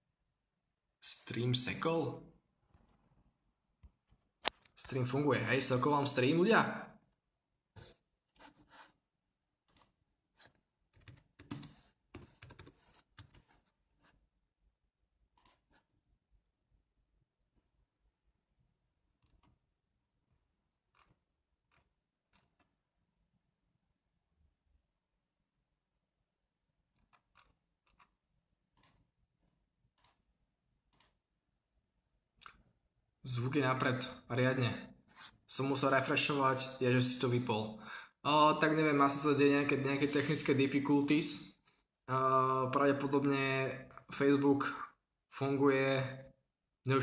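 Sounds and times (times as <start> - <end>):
typing on computer keyboard: 10.9 - 13.4.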